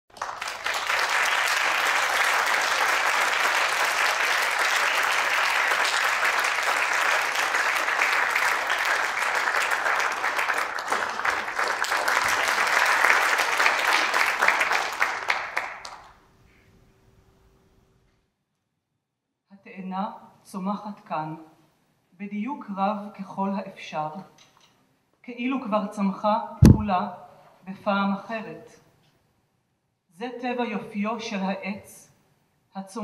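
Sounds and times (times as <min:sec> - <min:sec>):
audience applauding: 0:00.1 - 0:16.2.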